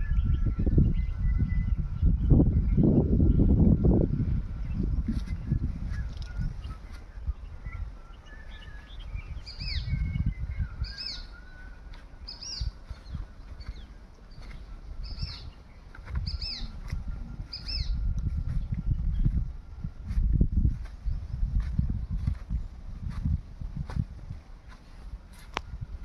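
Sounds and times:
low rumbling on microphone: 0.0 - 26.0
other birds chirping: 4.6 - 19.5.

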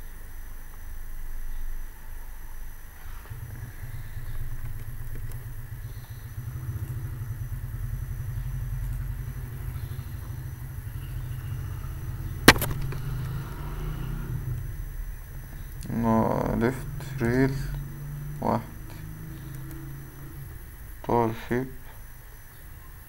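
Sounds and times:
steady low rumble: 0.0 - 23.0
sharp double click: 12.5 - 13.1.

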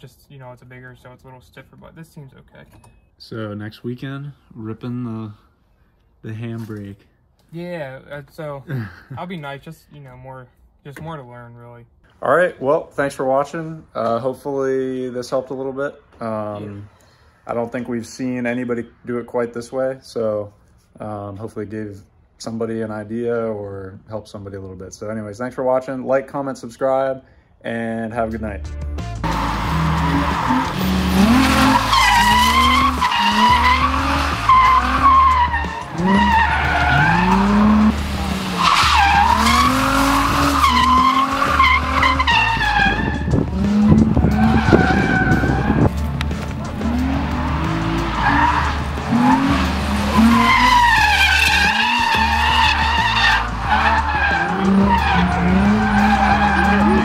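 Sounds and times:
car engine revving: 29.2 - 57.0
tyres squealing: 29.2 - 57.0.

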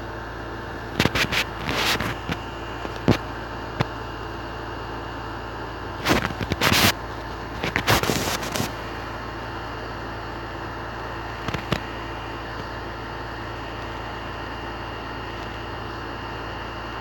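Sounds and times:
crackling noise bursts: 0.7 - 4.0, 5.9 - 9.3, 11.2 - 12.7.

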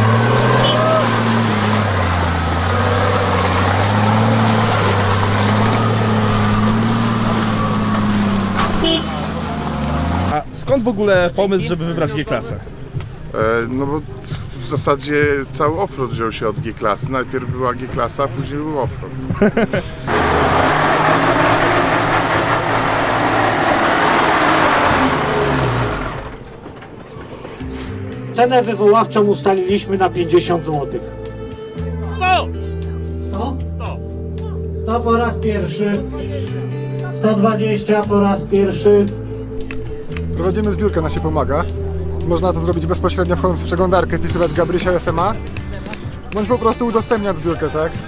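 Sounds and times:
vehicle engine running: 0.0 - 10.5, 19.4 - 26.7.

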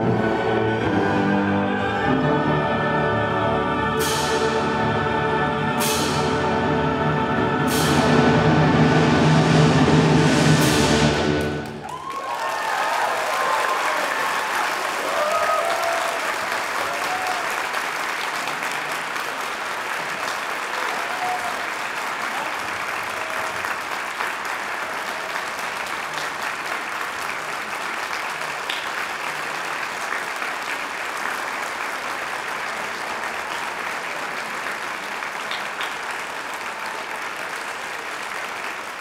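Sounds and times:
large audience applauding: 11.3 - 39.0.

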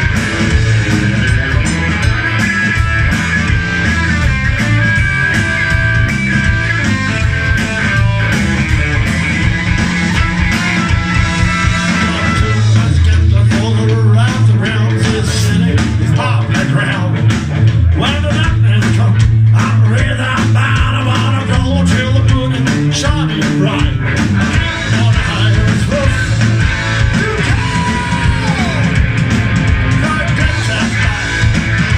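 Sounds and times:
bass guitar: 0.0 - 31.9
drums: 0.0 - 31.9
electric guitar: 0.0 - 31.9
trumpet and saxophone long notes: 10.7 - 12.9
person singing: 11.6 - 17.2, 27.1 - 29.0.

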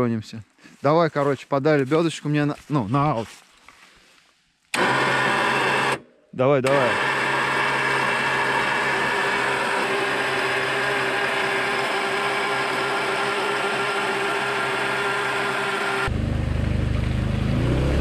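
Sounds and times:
electric winch motor whining: 4.7 - 6.0, 6.6 - 16.1
atv engine running: 14.5 - 18.0.

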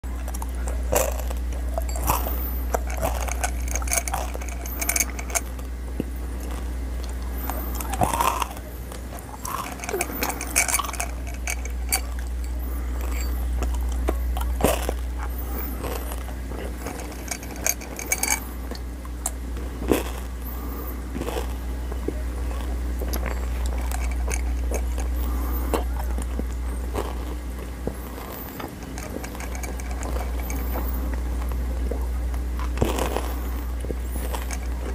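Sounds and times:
chewing and crunching gum: 0.0 - 34.9
steady low hum: 0.0 - 34.9
pellets clinking against glass: 1.0 - 5.5, 9.4 - 13.7, 16.8 - 18.6, 23.2 - 25.4, 28.5 - 31.1, 34.2 - 34.9.

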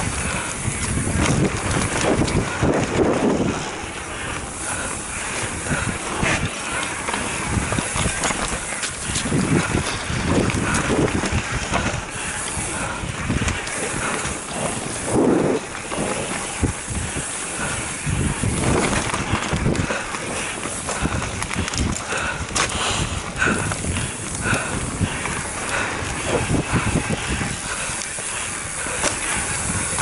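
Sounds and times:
bike frame and chain rattling: 0.0 - 30.0
bike tyres rolling over loose dirt: 0.0 - 30.0.

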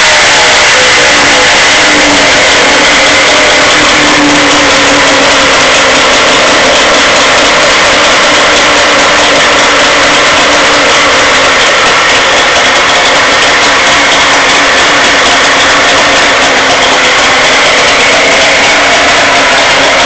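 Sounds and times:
outboard motor running: 0.0 - 20.0.

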